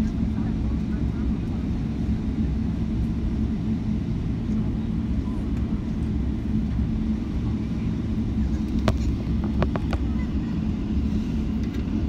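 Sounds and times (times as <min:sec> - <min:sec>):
jet engines idling: 0:00.0 - 0:12.0.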